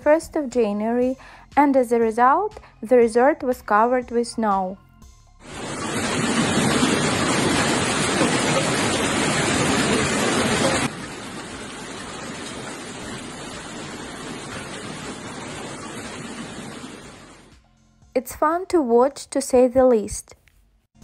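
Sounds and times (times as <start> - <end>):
hail pelting down: 5.5 - 17.4.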